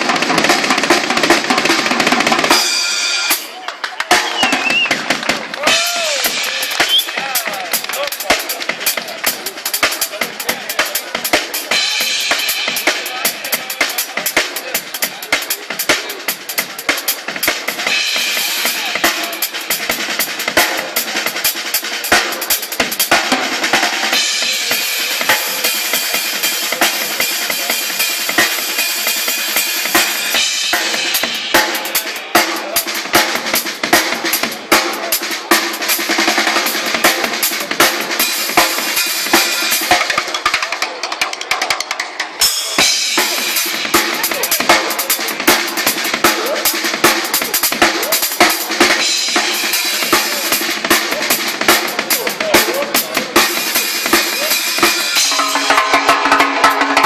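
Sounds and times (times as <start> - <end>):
drum kit playing fast beat: 0.0 - 57.0
cymbals crashing: 53.4 - 57.0.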